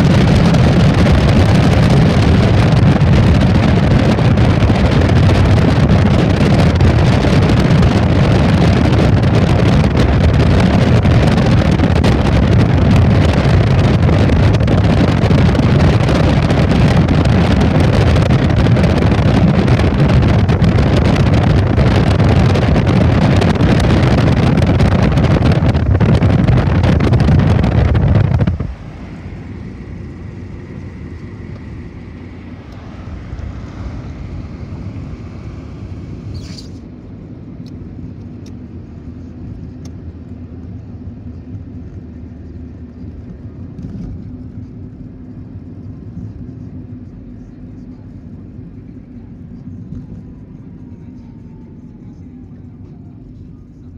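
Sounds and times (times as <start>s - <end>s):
wind buffeting: 0.0s - 37.3s
car road noise: 0.0s - 53.9s.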